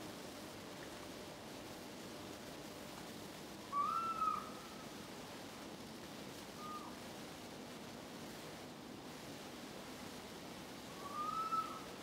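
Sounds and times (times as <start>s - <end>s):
steady low hiss: 0.0s - 12.0s
fox whistle-like call: 3.7s - 4.4s, 6.6s - 6.9s, 11.0s - 11.8s.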